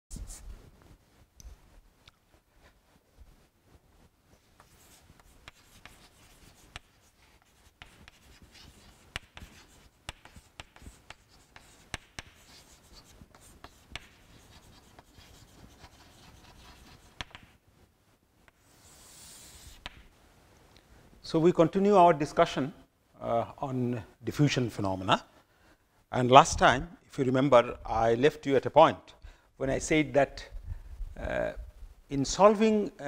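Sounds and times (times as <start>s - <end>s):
chalk scratching on chalkboard: 4.4s - 17.5s, 18.5s - 20.1s
chalk tapping on board: 4.6s - 17.6s, 18.5s - 20.1s.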